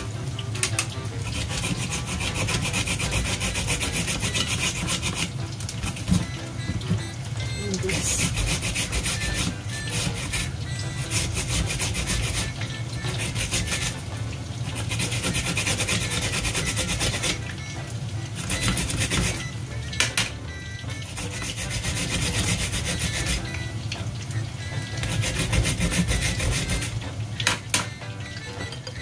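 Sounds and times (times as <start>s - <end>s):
radish grating scraping strokes: 1.2s - 6.2s, 7.9s - 14.1s, 14.7s - 17.5s, 21.1s - 23.5s, 25.0s - 27.0s.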